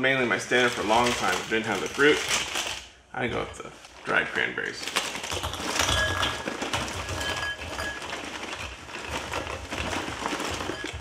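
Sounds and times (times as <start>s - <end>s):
cereal pouring into a bowl: 5.2s - 11.0s.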